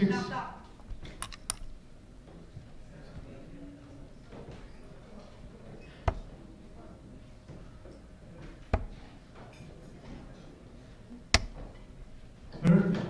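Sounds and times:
darts thudding into dartboard: 5.9s - 6.4s, 8.4s - 9.6s, 11.3s - 11.8s.

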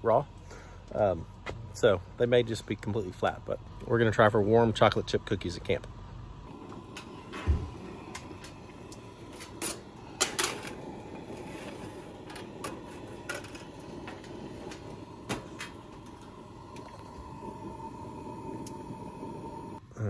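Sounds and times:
camp stove burner noise: 0.0s - 19.8s
oven door shutting: 6.8s - 16.3s.

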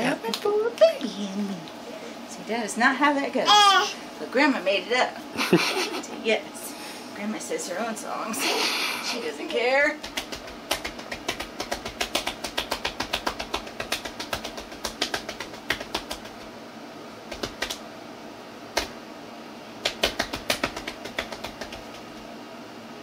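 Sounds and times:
quick sharp taps: 10.0s - 16.5s, 17.3s - 17.8s, 19.8s - 22.1s.

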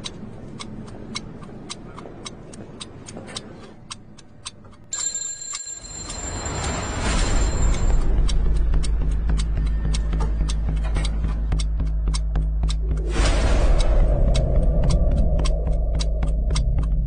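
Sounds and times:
fast clock-like ticking: 3.9s - 17.0s
deep rumble: 6.7s - 17.0s.

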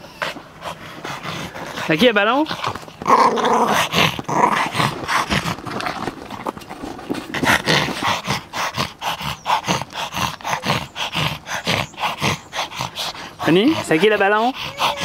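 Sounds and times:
dog panting hard: 0.0s - 3.0s, 7.1s - 15.0s.

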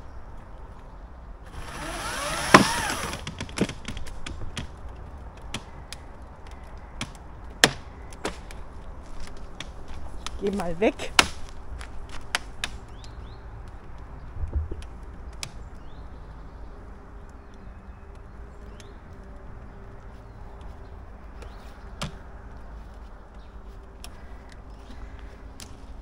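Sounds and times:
wood cracking: 1.4s - 26.0s
low thump: 14.4s - 14.8s.

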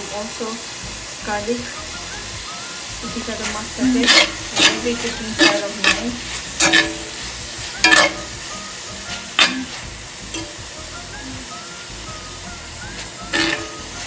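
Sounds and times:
food sizzling in a pan: 0.0s - 14.0s
metal spoon scraping a pan: 2.8s - 10.6s, 12.9s - 14.0s.

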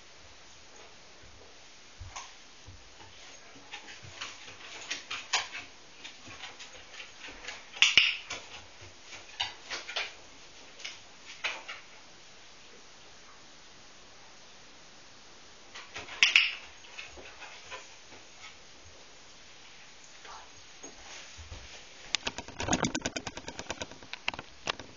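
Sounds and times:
dog claws clicking on wood floor: 3.7s - 10.2s, 22.1s - 24.9s
loud clatter: 22.2s - 24.9s.

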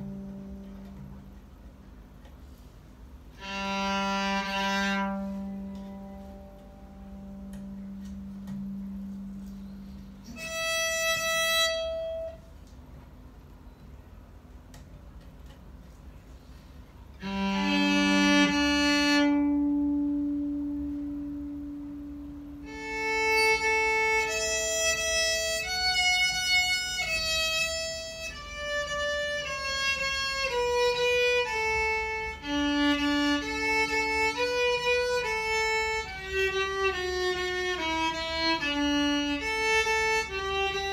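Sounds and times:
electric violin being bowed: 0.0s - 1.2s, 3.3s - 12.5s, 17.1s - 40.9s.

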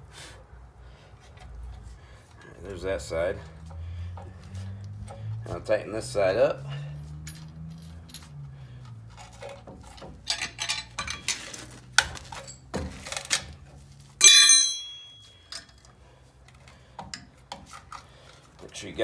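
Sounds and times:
sharp metallic clank: 14.2s - 15.6s.

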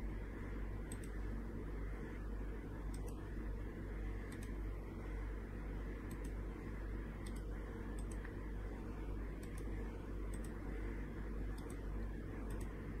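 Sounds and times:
low electrical hum: 0.0s - 13.0s
computer mouse clicks: 0.8s - 1.2s, 2.8s - 3.2s, 4.2s - 4.6s, 6.0s - 6.4s, 7.2s - 8.4s, 9.4s - 10.6s, 11.5s - 12.8s.

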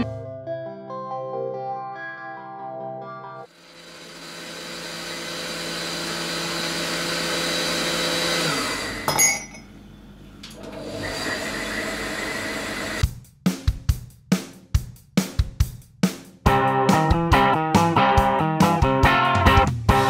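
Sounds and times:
blender motor running: 3.5s - 9.1s, 10.6s - 13.0s
music with drum beat: 13.0s - 20.0s.

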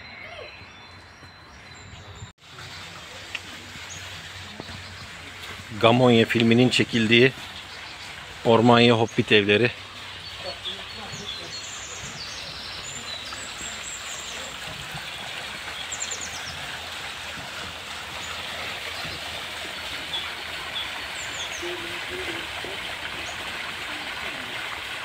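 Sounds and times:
bird chirping in high trills: 0.0s - 2.3s
stream flowing: 2.4s - 25.0s.

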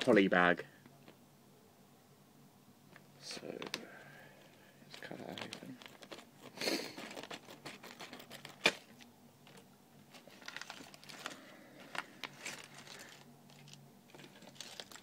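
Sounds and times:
plastic bag crinkling: 4.9s - 15.0s
scissors cutting plastic bag: 12.0s - 15.0s.

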